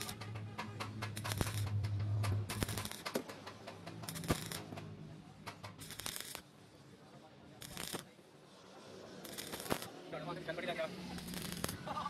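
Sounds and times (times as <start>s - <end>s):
welding arc crackling: 0.0s - 4.8s, 5.5s - 6.5s, 7.5s - 8.2s, 9.1s - 12.0s.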